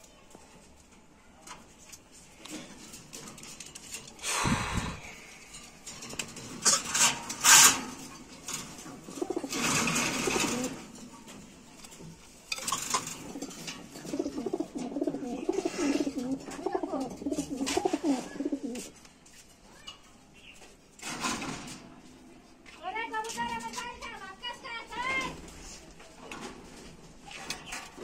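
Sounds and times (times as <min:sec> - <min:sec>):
metal cage bars clattering: 0:05.5 - 0:11.6, 0:12.5 - 0:18.1
pigeon cooing: 0:09.0 - 0:10.9, 0:13.0 - 0:18.9.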